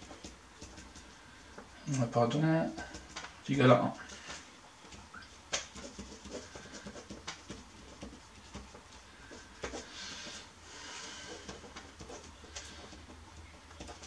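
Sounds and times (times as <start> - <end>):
pen scratching on paper: 5.8 - 10.3.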